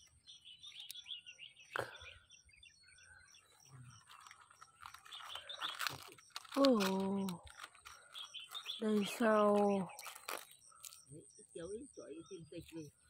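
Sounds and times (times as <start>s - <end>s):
faint bird chirps: 0.0s - 13.0s
hands rustling cabbage leaves: 4.0s - 11.0s
leaf snapping: 4.2s - 11.0s.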